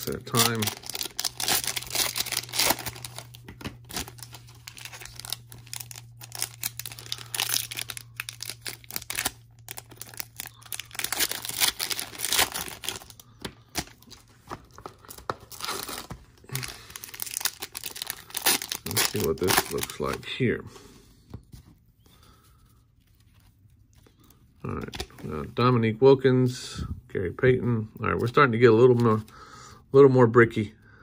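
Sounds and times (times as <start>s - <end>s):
card pack wrappers tearing: 0.0s - 20.2s.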